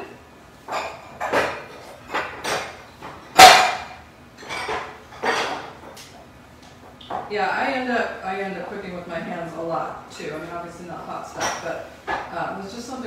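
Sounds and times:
glass bowls and utensils clattering: 0.7s - 6.0s.

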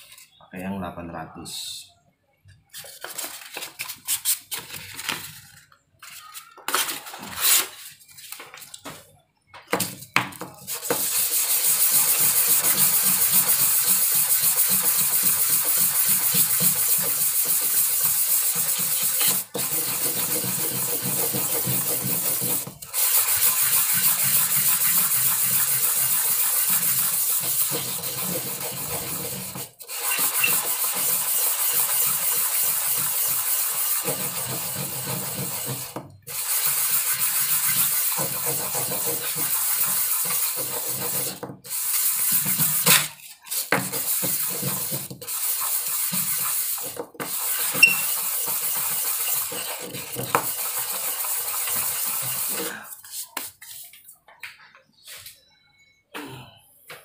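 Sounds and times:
sandpaper crackling: 2.8s - 8.7s, 10.6s - 53.9s
sanding wood rasp: 10.7s - 42.9s, 43.5s - 53.2s.

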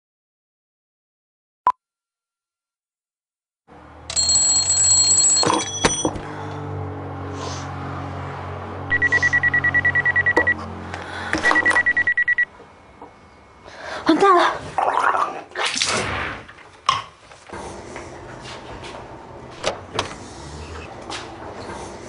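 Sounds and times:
phone alarm beeping: 4.1s - 6.2s, 8.9s - 10.7s, 11.4s - 12.5s.

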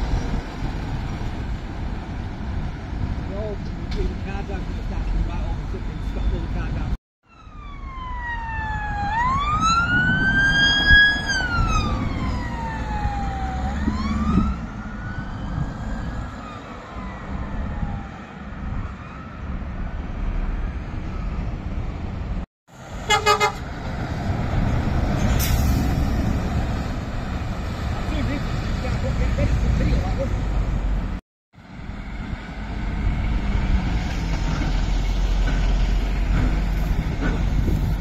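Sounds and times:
heavy lorry passing: 0.0s - 6.9s, 8.5s - 38.0s
road traffic: 0.0s - 38.0s
police siren wailing: 7.2s - 19.6s.

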